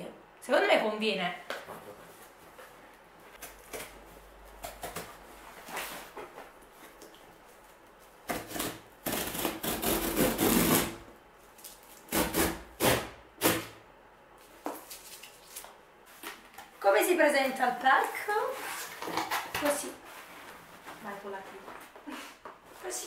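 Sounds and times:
packing tape scraping and ripping: 0:08.2 - 0:13.7, 0:14.8 - 0:16.4, 0:18.0 - 0:19.9.

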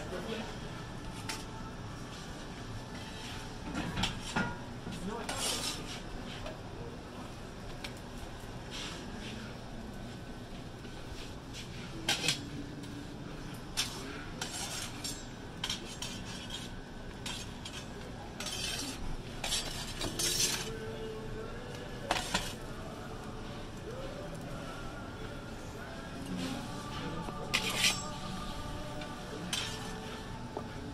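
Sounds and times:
steady background hum: 0:00.0 - 0:30.9
metal pizza peel scraping: 0:02.1 - 0:06.6, 0:11.1 - 0:12.6, 0:13.7 - 0:20.9, 0:22.0 - 0:22.6, 0:26.3 - 0:30.4.

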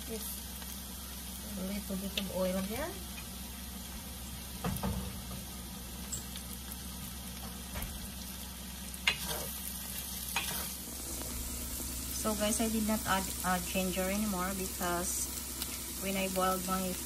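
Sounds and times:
meat sizzling in oil: 0:00.0 - 0:17.0
spatula knocking and scraping: 0:10.4 - 0:10.7.

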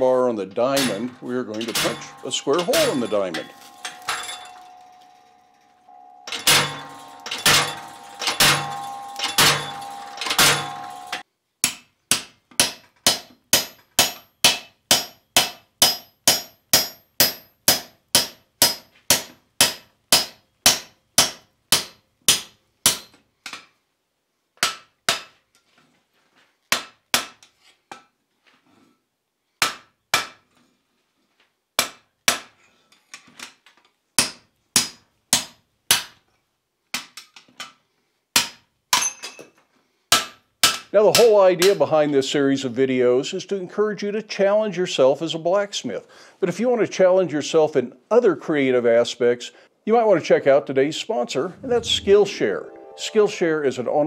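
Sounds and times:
hammer striking punch on hot iron: 0:00.8 - 0:05.0, 0:06.2 - 0:23.1.

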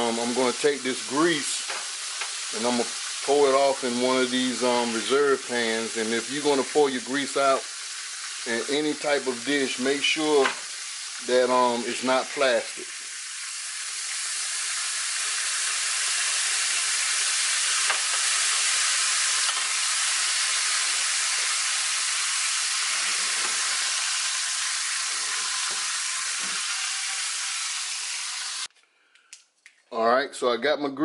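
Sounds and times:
grease sizzling in a skillet: 0:00.0 - 0:28.7.

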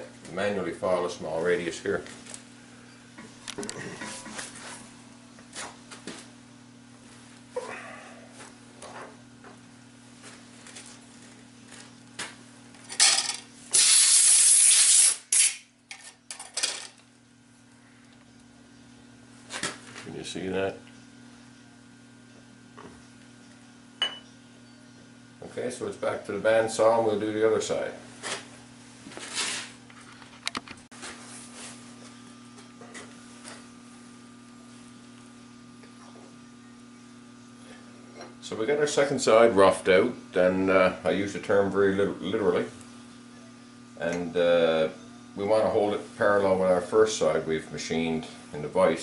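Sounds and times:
steady low hum: 0:00.0 - 0:49.0
air blast hissing: 0:13.7 - 0:15.6.

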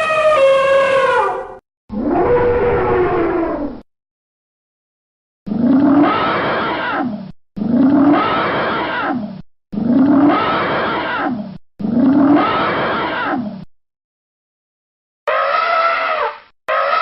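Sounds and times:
elephant roaring: 0:05.5 - 0:13.6.

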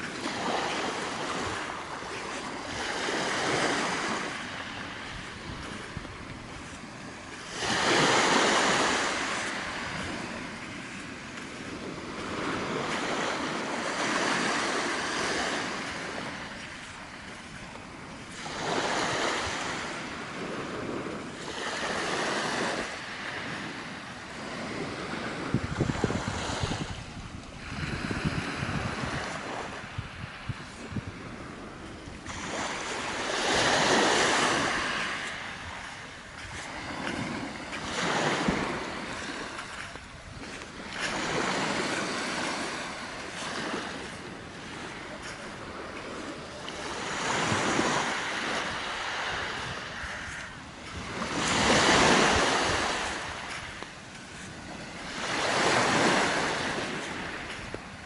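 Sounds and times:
small waves breaking on shore: 0:00.0 - 0:58.0
wind rumble on microphone: 0:00.0 - 0:58.0.

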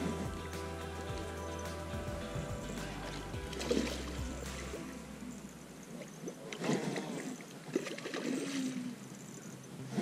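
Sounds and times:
fish splashing in water: 0:06.0 - 0:09.2.

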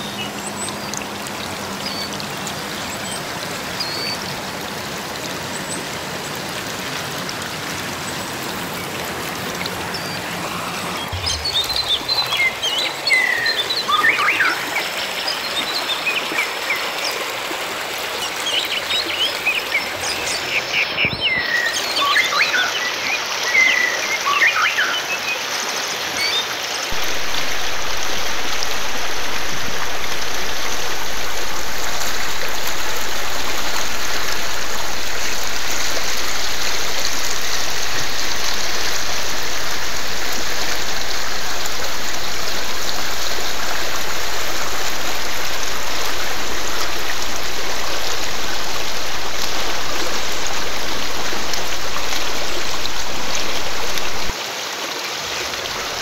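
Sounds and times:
stream rushing over rocks: 0:00.0 - 0:56.0
bird chirps: 0:11.0 - 0:14.6.

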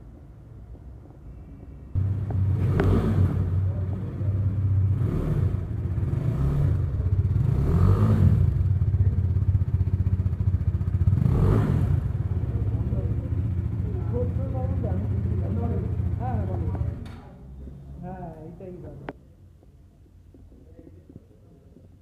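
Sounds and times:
motorcycle engine revving: 0:02.0 - 0:18.0.

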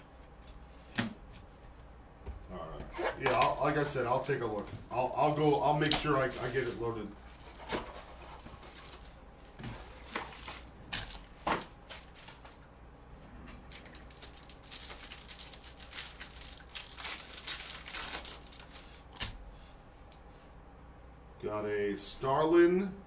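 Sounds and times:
foil wrapper crinkling and tearing: 0:03.1 - 0:04.6, 0:05.2 - 0:12.6, 0:13.7 - 0:19.4.

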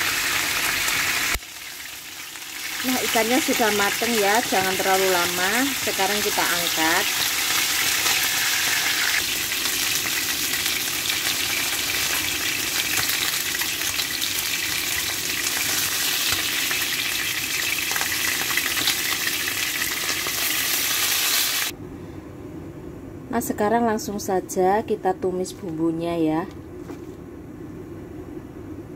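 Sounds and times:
fish sizzling in frying oil: 0:00.0 - 0:21.7.

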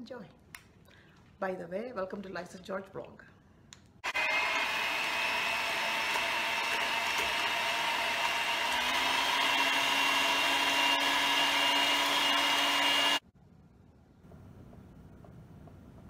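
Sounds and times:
electric hand mixer whine: 0:04.0 - 0:13.2.

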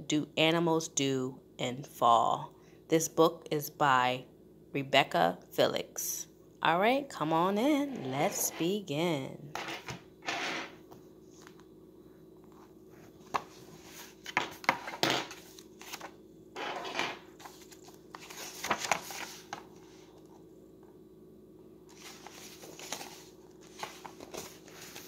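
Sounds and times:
pages flipping: 0:12.5 - 0:20.3, 0:21.9 - 0:25.0.

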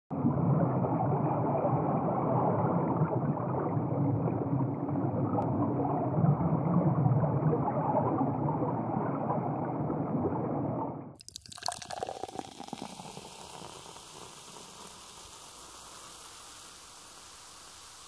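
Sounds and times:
beer pouring and bubbling: 0:11.1 - 0:18.0.

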